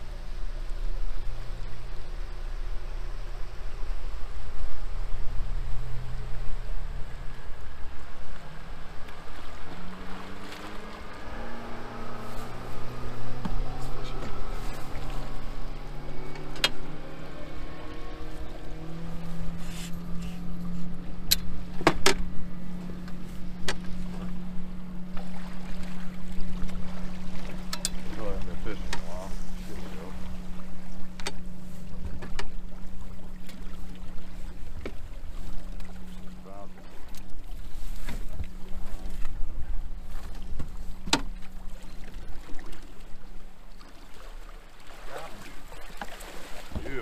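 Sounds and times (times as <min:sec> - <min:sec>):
outboard motor humming: 0:00.0 - 0:47.0
net handle knocking on boat: 0:21.3 - 0:22.3, 0:40.6 - 0:41.5.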